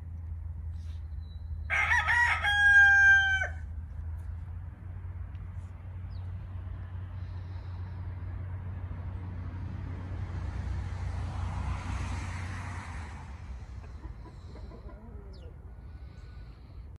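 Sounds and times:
low rumble with rushing noise: 0:03.5 - 0:16.9
chickens clucking: 0:13.7 - 0:16.0.

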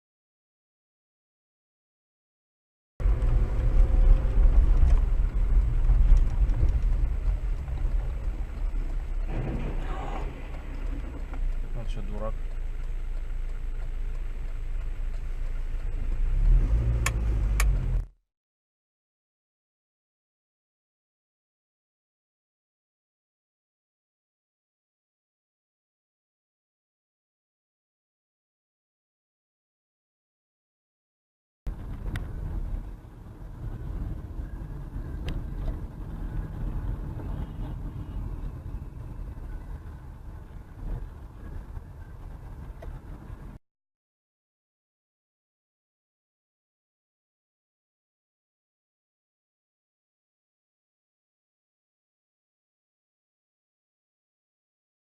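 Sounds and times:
car passing: 0:03.0 - 0:12.4, 0:15.2 - 0:18.0
car engine rumble: 0:03.0 - 0:18.2, 0:31.7 - 0:43.6
road noise: 0:03.0 - 0:18.2, 0:31.7 - 0:43.6.

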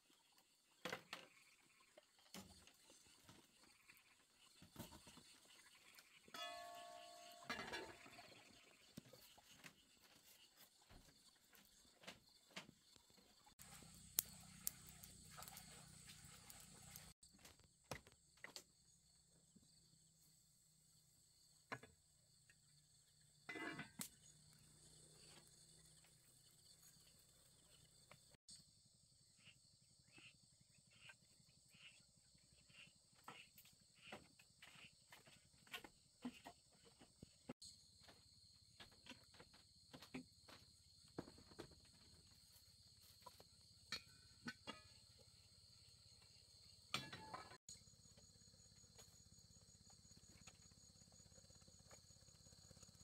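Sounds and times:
metal pot lid rattling: 0:07.4 - 0:08.2, 0:23.5 - 0:24.0.

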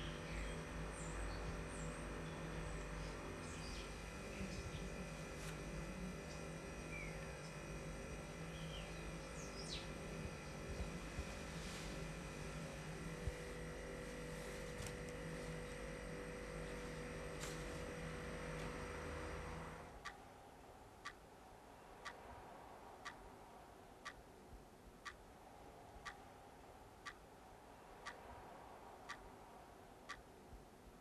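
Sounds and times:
low hum: 0:00.0 - 0:24.7.

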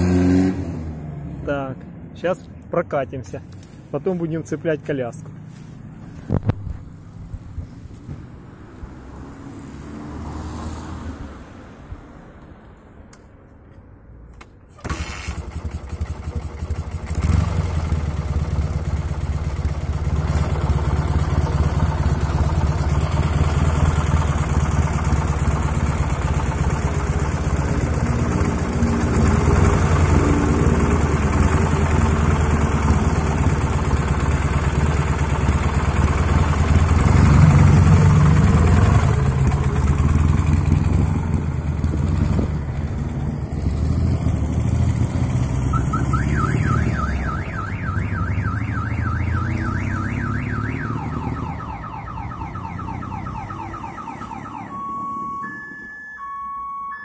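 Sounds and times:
motorcycle engine: 0:00.0 - 0:01.5, 0:14.4 - 0:55.3
car alarm whooping: 0:45.7 - 0:57.0.

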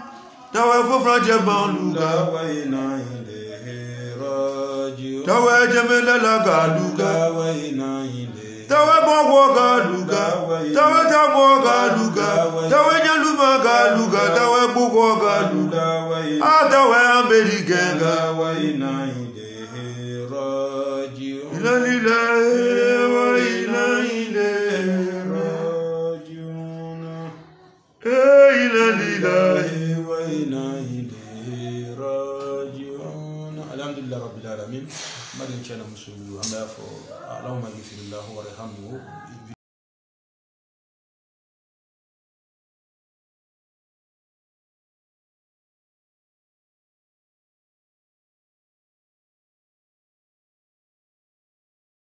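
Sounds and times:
man chanting: 0:00.0 - 0:39.6.

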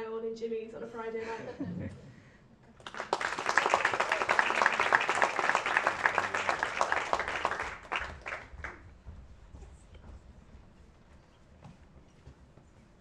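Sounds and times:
audience applauding: 0:02.8 - 0:08.8.

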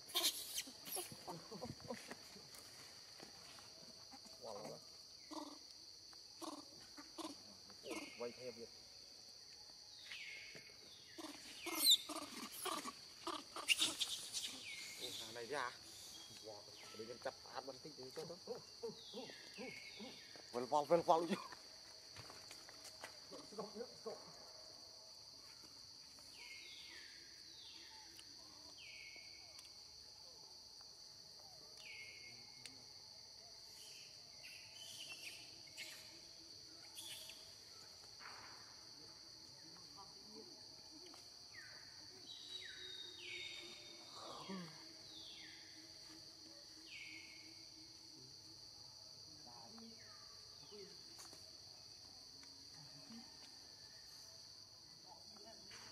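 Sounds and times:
high squeaky cries: 0:00.1 - 0:01.2, 0:11.2 - 0:14.6
monkeys calling: 0:00.1 - 0:02.2, 0:06.4 - 0:08.4, 0:11.2 - 0:15.4.

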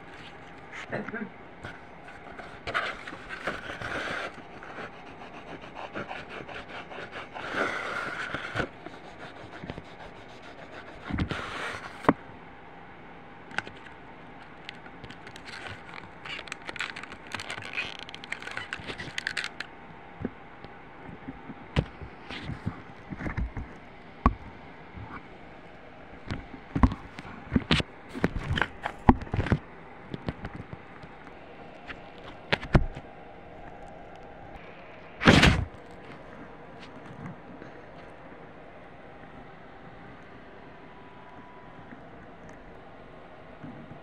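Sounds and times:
oil pastel scraping on paper: 0:01.7 - 0:12.1, 0:15.1 - 0:19.7.

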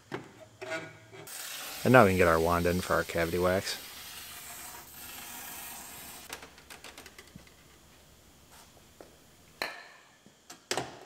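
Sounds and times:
aerosol spray hissing: 0:01.4 - 0:06.3.

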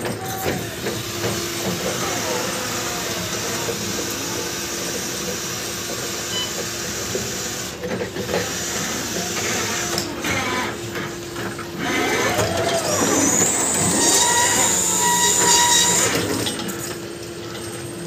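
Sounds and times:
squealing tones: 0:11.8 - 0:16.2
electric motor whine: 0:11.8 - 0:16.4.

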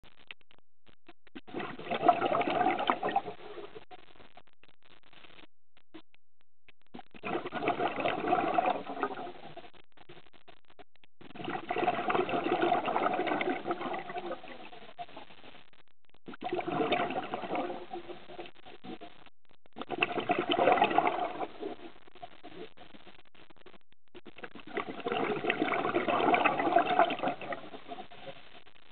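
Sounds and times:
exhaled air bubbling underwater: 0:01.4 - 0:03.9, 0:07.0 - 0:09.8, 0:11.2 - 0:15.2, 0:16.1 - 0:23.0, 0:24.2 - 0:28.5.

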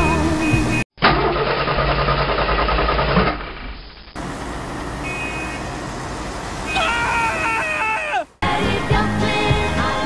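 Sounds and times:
car starter cranking: 0:01.0 - 0:03.4.

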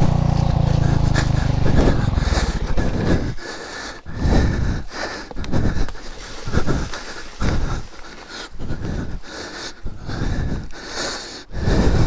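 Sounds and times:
motorcycle engine running: 0:00.0 - 0:03.4
person breathing hard: 0:00.5 - 0:12.0.

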